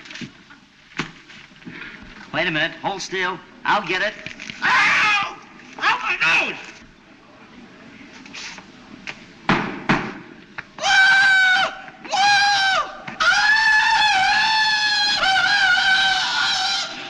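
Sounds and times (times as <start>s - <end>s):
man yodelling falsetto yell: 10.8s - 17.0s.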